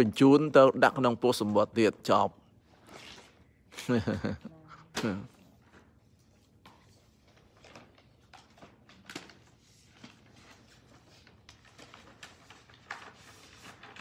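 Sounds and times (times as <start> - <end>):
paper rustling and tapping: 6.6 - 14.0.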